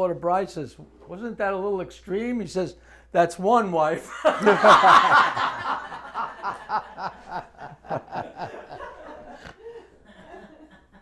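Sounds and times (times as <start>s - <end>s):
people chuckling: 4.2s - 11.0s.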